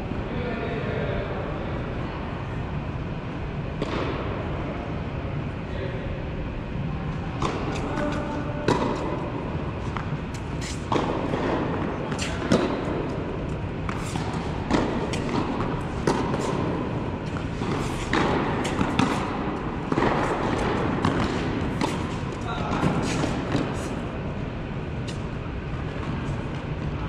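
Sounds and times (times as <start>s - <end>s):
steady background hum: 0.0s - 27.0s
racket hitting tennis ball: 7.3s - 27.0s
tennis ball bouncing: 7.4s - 27.0s.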